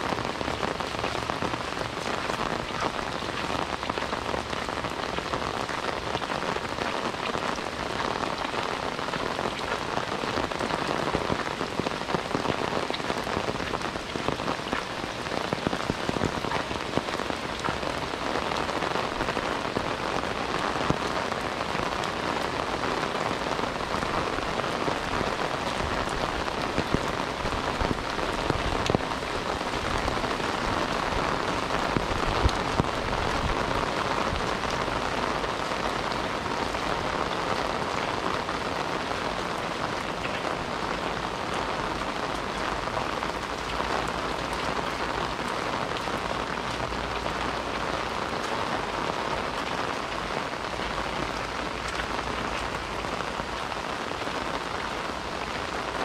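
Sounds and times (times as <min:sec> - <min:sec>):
raindrops ticking close by: 0:00.0 - 0:56.0
steady rain: 0:00.0 - 0:56.0.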